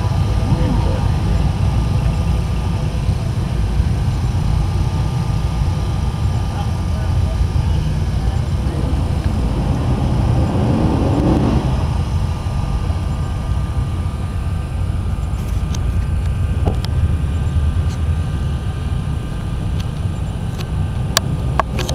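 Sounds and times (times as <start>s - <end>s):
car engine idling: 0.0s - 21.9s.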